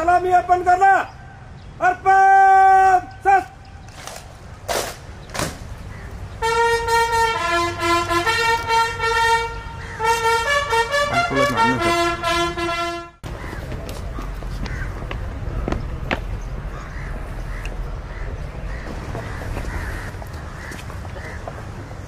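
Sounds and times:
bugle call: 0:06.4 - 0:13.2.

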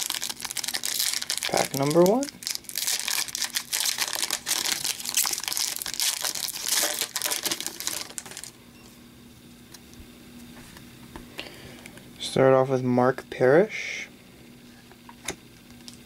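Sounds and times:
foil wrapper crinkling: 0:00.0 - 0:08.5.

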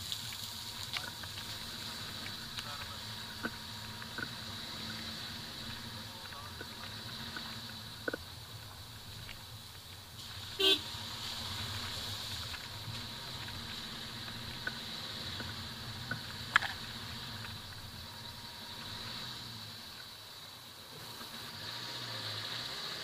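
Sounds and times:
car engine and tyre hum on gravel: 0:00.0 - 0:23.0
car horn toot: 0:10.5 - 0:10.9.

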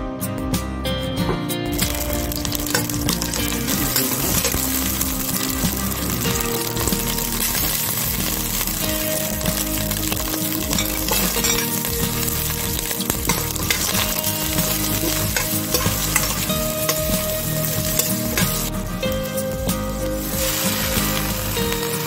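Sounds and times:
onion sizzling in hot oil: 0:01.7 - 0:22.0
metal spoon scraping a pot: 0:01.8 - 0:08.4, 0:09.6 - 0:18.7.

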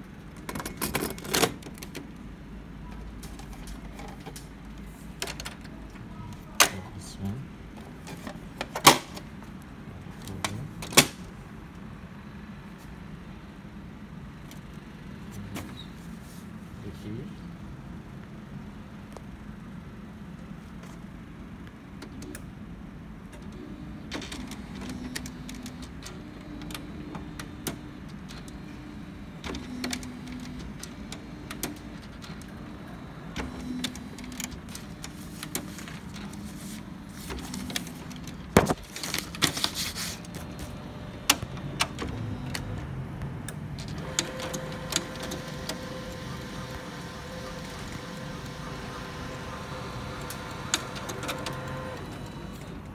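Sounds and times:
high printer whine: 0:23.4 - 0:52.9
short low printer tones: 0:23.5 - 0:39.2, 0:40.2 - 0:42.9, 0:43.9 - 0:52.9
laser printer whirring: 0:23.5 - 0:52.9
printer clicks: 0:43.5 - 0:52.8.

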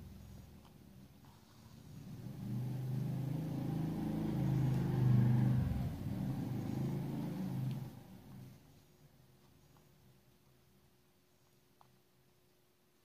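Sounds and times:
motor vehicle engine running: 0:01.8 - 0:08.6.

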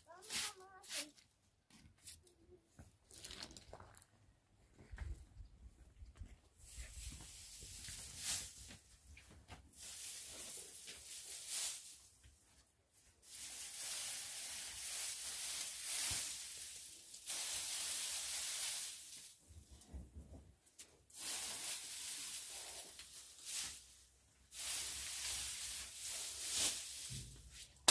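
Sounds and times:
hissing rustling noise: 0:00.1 - 0:01.2, 0:06.7 - 0:12.3, 0:13.1 - 0:19.9, 0:21.1 - 0:27.8.

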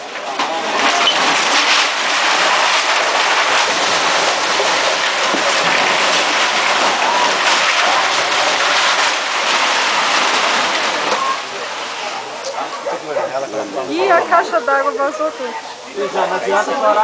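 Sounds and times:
rumbling of falling masonry: 0:00.0 - 0:12.2.

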